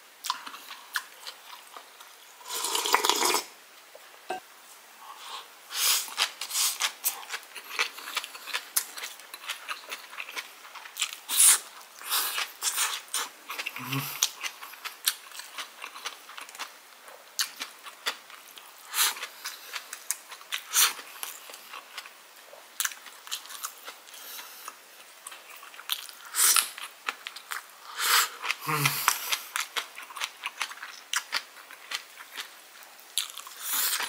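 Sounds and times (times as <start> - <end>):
chewing and crunching: 6.1 - 27.7, 28.3 - 34.0
person humming: 13.8 - 14.2, 28.6 - 29.2.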